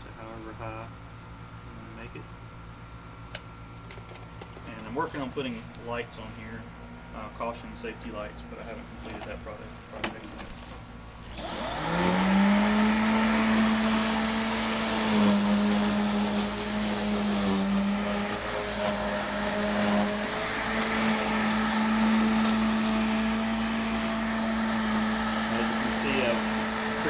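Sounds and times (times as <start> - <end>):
electric mower motor hum: 10.2 - 27.0
hiss of mower driving: 11.2 - 27.0.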